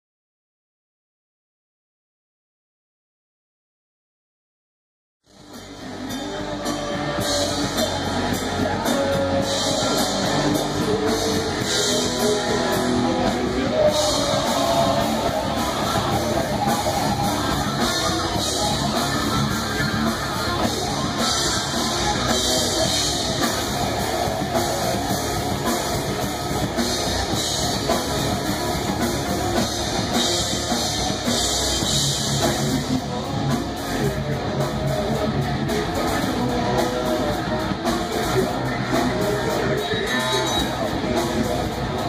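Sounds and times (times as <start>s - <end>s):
distorted electric guitars: 5.2s - 42.0s
drum kit: 5.3s - 42.0s.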